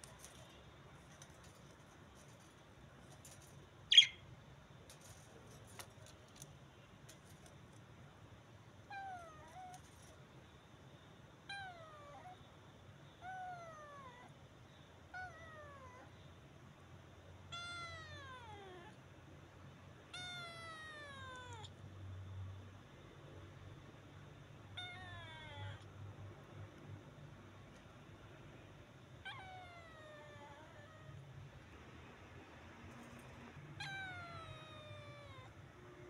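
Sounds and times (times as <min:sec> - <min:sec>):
kitten meowing: 0:17.5 - 0:19.0, 0:20.1 - 0:21.7, 0:24.7 - 0:25.9, 0:29.2 - 0:31.1, 0:33.8 - 0:35.6.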